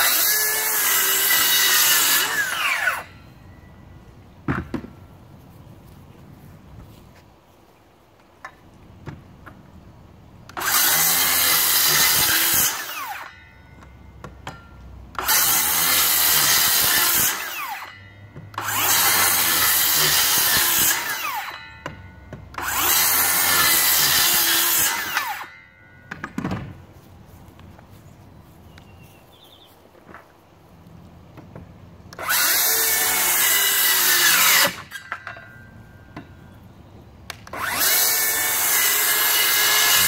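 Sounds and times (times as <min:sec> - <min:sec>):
circular saw cutting wood: 0:00.0 - 0:03.2, 0:10.5 - 0:13.5, 0:15.1 - 0:21.8, 0:22.6 - 0:25.6, 0:32.2 - 0:35.7, 0:37.4 - 0:40.0.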